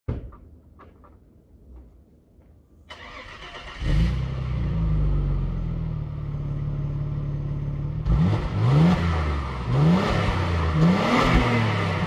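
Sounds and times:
car engine starting and idling: 0:02.8 - 0:12.0.

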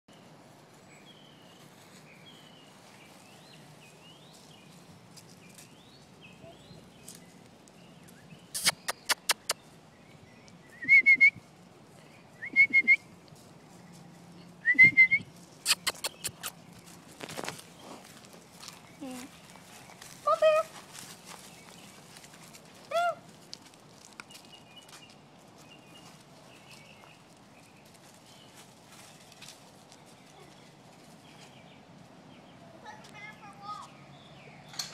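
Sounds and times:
puppy yipping: 0:15.7 - 0:16.6.

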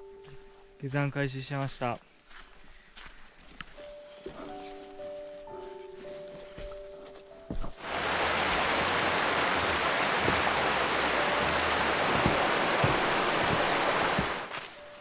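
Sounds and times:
stream rushing over rocks: 0:07.8 - 0:15.0.

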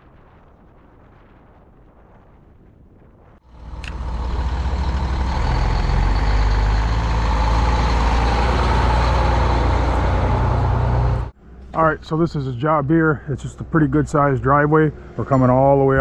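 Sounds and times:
road or wind noise: 0:00.0 - 0:16.0
truck engine running: 0:03.4 - 0:15.7.

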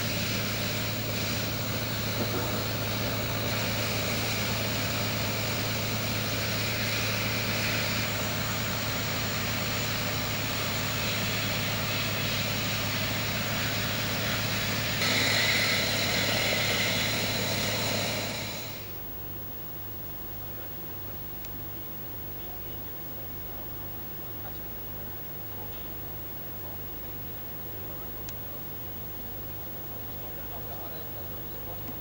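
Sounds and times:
construction machinery running: 0:00.0 - 0:19.0.

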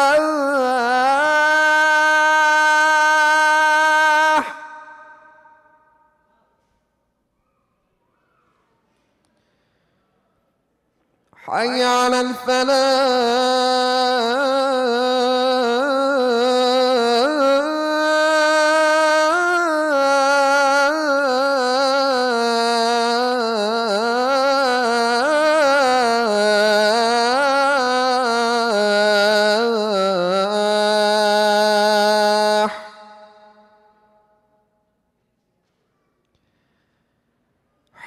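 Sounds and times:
man chanting call to prayer: 0:00.0 - 0:06.5, 0:11.4 - 0:34.1.

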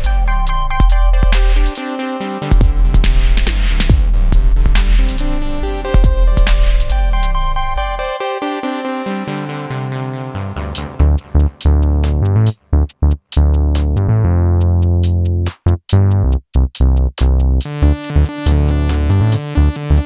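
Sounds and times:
electronic music with synth bass: 0:00.0 - 0:20.0.

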